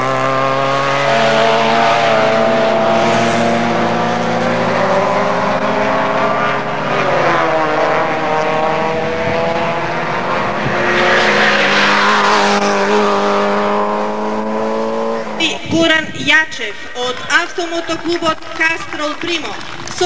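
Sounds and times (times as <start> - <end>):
car passing close: 0.0 - 15.4
racing car engines: 0.0 - 20.0.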